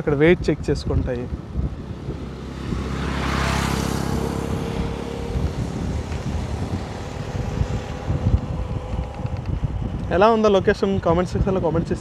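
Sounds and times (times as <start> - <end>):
wind buffeting microphone: 0.0 - 12.0
motorbike engine humming: 1.2 - 11.7.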